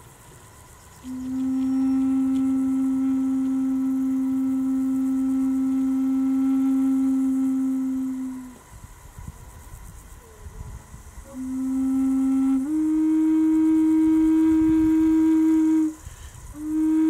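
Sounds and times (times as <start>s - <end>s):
wooden flute low note: 1.0s - 8.7s, 10.2s - 17.0s.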